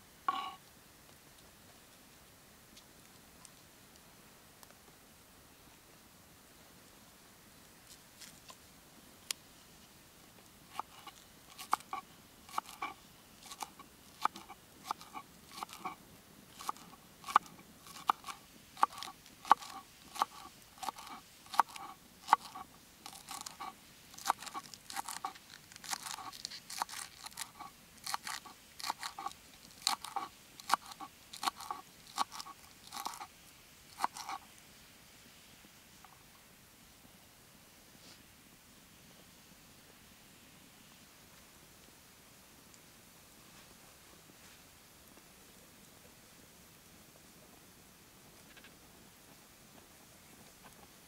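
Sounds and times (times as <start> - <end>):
knife cutting onions on wooden board: 10.7 - 16.0, 16.6 - 33.3, 33.9 - 34.4.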